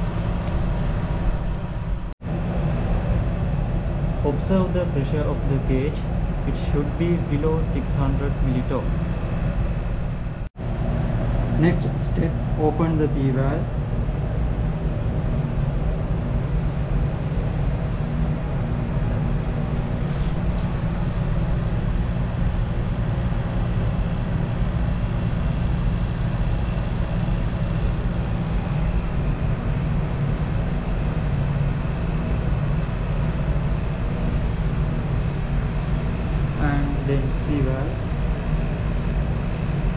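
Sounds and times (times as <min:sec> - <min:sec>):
exhaust fan drone: 0:00.0 - 0:39.9
vacuum pump running: 0:00.0 - 0:39.9.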